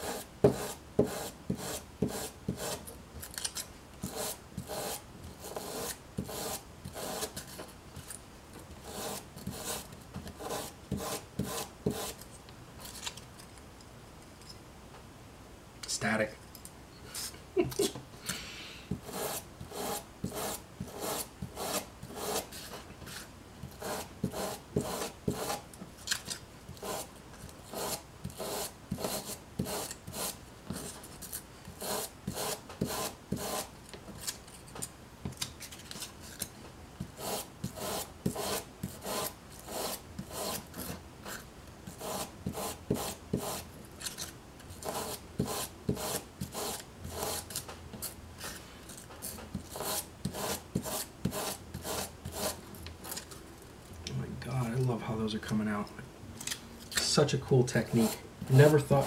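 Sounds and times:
hand tool rasping on foam: 0.0s - 2.8s, 4.0s - 7.4s, 8.8s - 9.8s, 10.4s - 12.2s, 19.0s - 22.8s, 23.8s - 25.6s, 26.8s - 27.1s, 27.7s - 30.9s, 31.8s - 33.7s, 37.2s - 40.9s, 42.0s - 43.6s, 44.8s - 47.5s, 49.7s - 52.6s, 57.9s - 59.0s.

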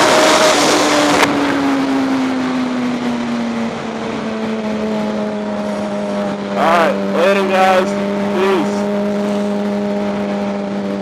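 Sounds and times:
motorcycle engine: 0.0s - 11.0s.

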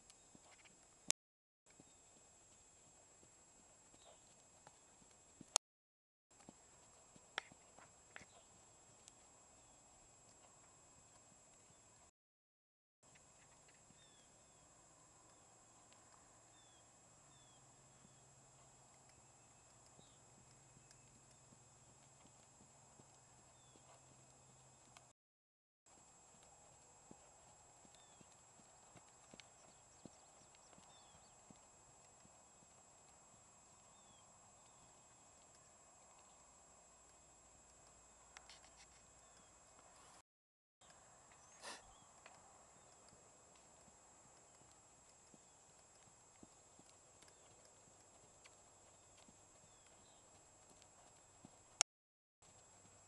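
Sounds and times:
hoofbeats trotting on sand: 0.0s - 1.0s, 1.7s - 5.6s, 6.4s - 11.9s, 15.2s - 25.1s, 25.9s - 36.4s, 41.3s - 51.8s, 52.4s - 53.0s.

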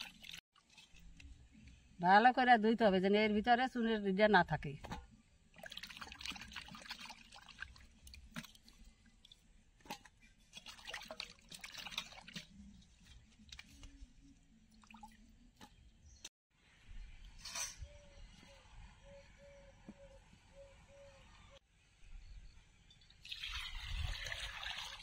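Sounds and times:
hands splashing water in a bowl: 5.6s - 12.6s.

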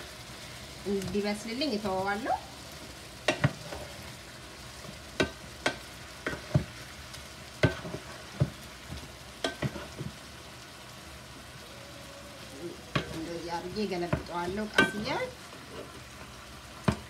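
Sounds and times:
chicken sizzling in skillet: 0.0s - 17.0s
wooden spatula knocking pan: 3.3s - 3.6s, 7.6s - 10.2s, 12.9s - 13.2s, 14.0s - 15.0s.

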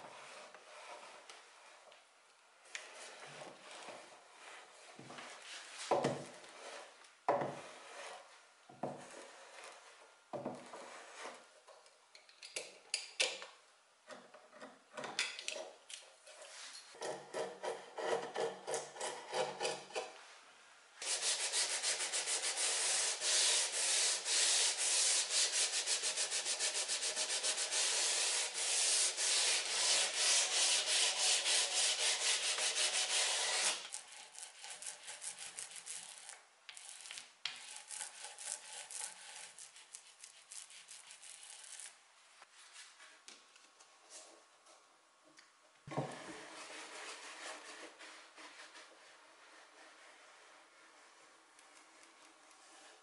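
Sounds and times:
chisel scraping wood: 2.8s - 11.5s, 16.5s - 20.2s, 21.0s - 41.9s
hand sanding wood edge: 21.0s - 36.4s
iron sliding over wood: 26.8s - 39.6s.

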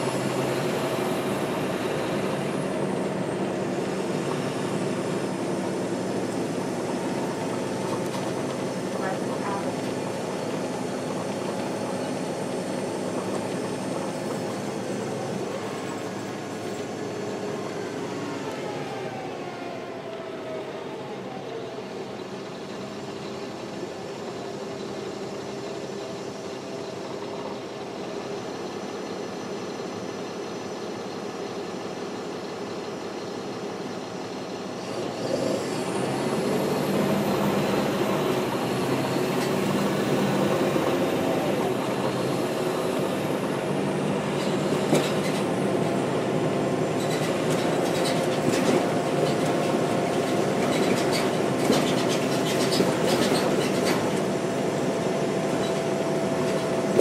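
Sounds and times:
diesel bus engine running: 0.0s - 57.0s.

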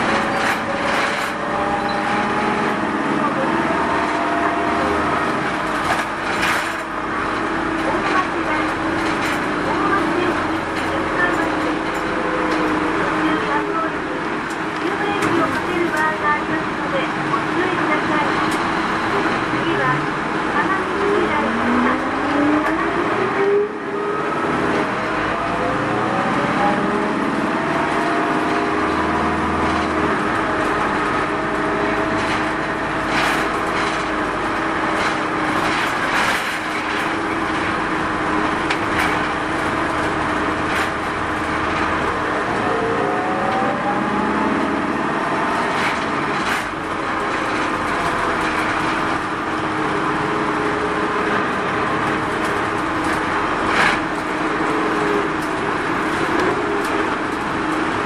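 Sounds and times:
diesel minibus engine: 0.0s - 58.0s
road noise: 0.0s - 58.0s
knocks and rattles: 5.2s - 13.0s, 27.5s - 42.3s, 44.9s - 58.0s.

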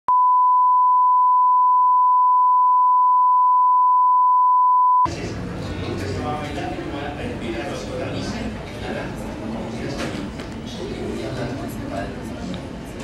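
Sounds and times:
pure test tone beep: 0.1s - 5.1s.

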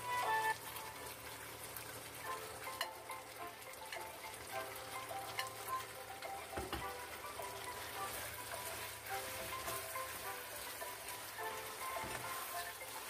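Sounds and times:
chicken sizzling in a frying pan: 0.0s - 13.0s
faint music: 0.0s - 13.0s
wooden spatula stirring: 7.7s - 13.0s.

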